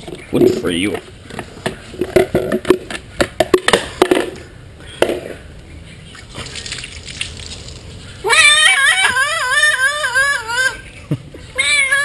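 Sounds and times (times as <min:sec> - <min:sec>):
water splashing: 0:06.2 - 0:08.1.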